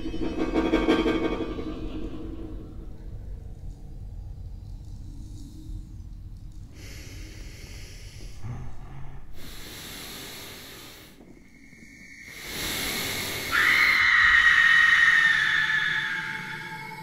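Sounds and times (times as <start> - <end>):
accordion breathy air swells: 6.8 - 14.0
thin high held tone: 13.5 - 17.0.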